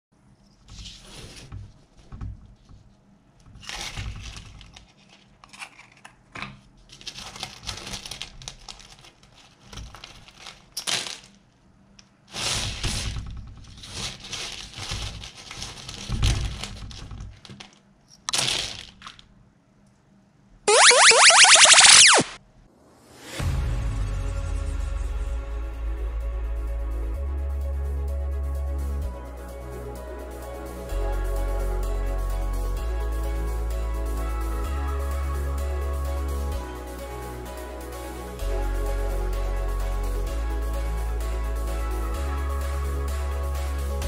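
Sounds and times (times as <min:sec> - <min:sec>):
rustling on paper: 0:00.3 - 0:06.0, 0:06.7 - 0:11.4, 0:12.3 - 0:17.8.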